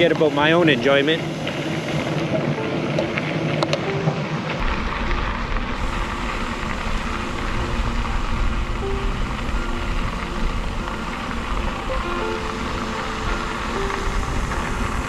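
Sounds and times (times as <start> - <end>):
faint music: 0.0 - 15.0
wind rumbling on microphone: 4.6 - 15.0.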